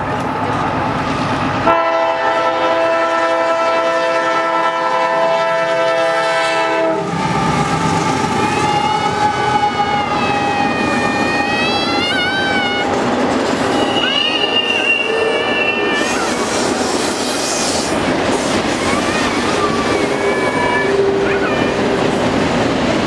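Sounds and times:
locomotive horn chord: 0:01.6 - 0:10.7
high wavering squeal: 0:07.1 - 0:12.9, 0:13.6 - 0:18.0.

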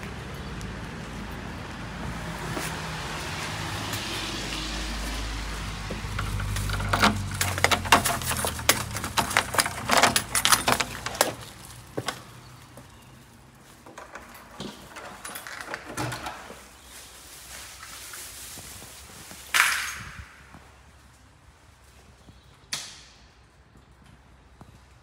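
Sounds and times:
keys jangling: 0:06.2 - 0:11.8, 0:13.9 - 0:16.6
door opening clicks: 0:13.9 - 0:16.6.

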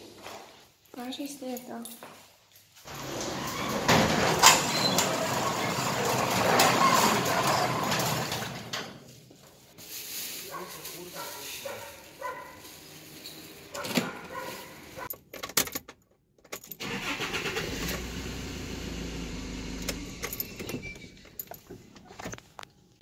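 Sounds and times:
handling noise: 0:02.6 - 0:16.7
car engine starting and running: 0:16.8 - 0:21.2.

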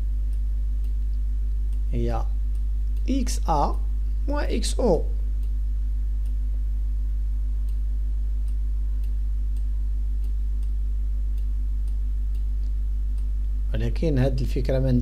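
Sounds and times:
low electrical hum: 0:00.0 - 0:15.0
faint light ticks: 0:00.3 - 0:01.9, 0:06.2 - 0:06.4, 0:07.6 - 0:07.8, 0:08.4 - 0:13.6.

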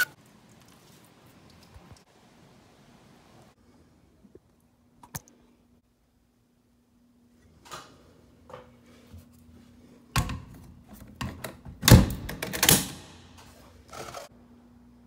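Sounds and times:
faint steady hum: 0:00.0 - 0:11.4.

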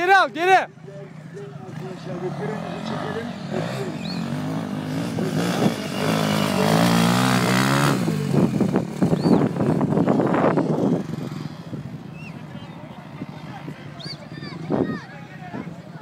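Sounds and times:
motocross bike engine revving: 0:01.5 - 0:12.1.

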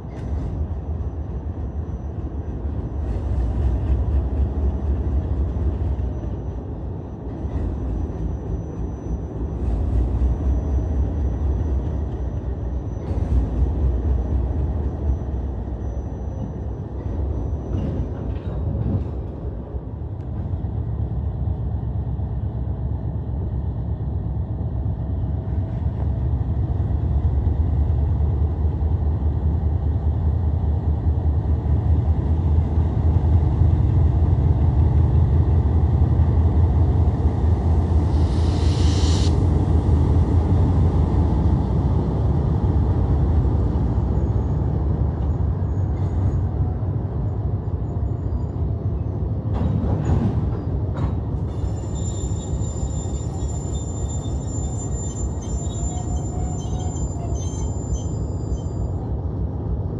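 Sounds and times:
air hiss: 0:38.0 - 0:39.5.

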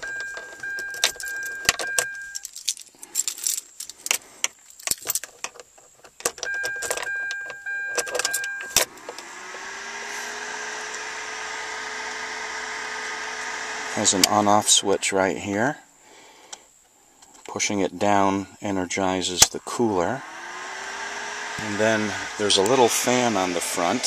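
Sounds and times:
car electronic warning chime: 0:00.0 - 0:02.4, 0:06.4 - 0:15.0
car keys jangling and clicking: 0:00.0 - 0:09.2
electric fan motor whirring: 0:08.8 - 0:15.1, 0:20.1 - 0:24.0.

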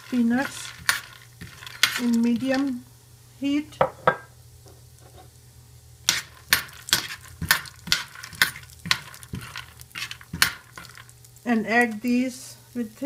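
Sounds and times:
utensil scraping nuts in a pan: 0:00.0 - 0:02.8, 0:06.0 - 0:13.0.

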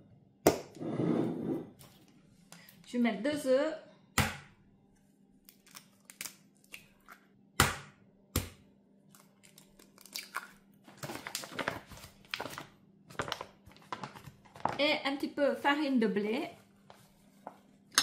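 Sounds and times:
eggs cracking against bowl: 0:09.1 - 0:10.7
crinkling and rustling: 0:10.9 - 0:15.0, 0:16.4 - 0:17.9.

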